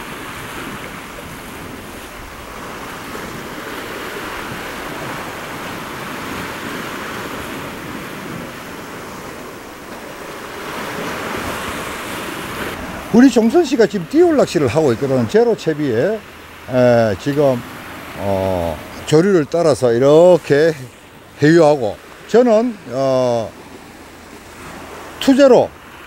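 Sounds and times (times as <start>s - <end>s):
wind on microphone: 0.0s - 13.2s
surf on rocky shore: 0.0s - 26.0s.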